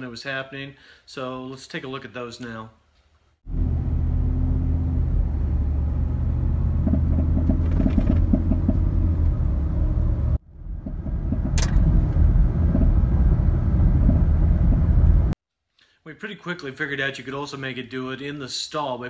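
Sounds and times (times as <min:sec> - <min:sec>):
truck engine under load: 0:03.5 - 0:15.3
engine popping: 0:06.7 - 0:09.4, 0:10.6 - 0:15.4
sharp click: 0:11.4 - 0:11.9.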